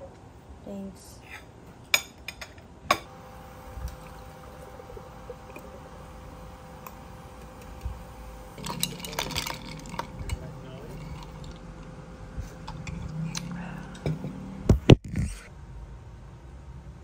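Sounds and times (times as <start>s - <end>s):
drink pouring into glass jar: 8.6s - 11.9s.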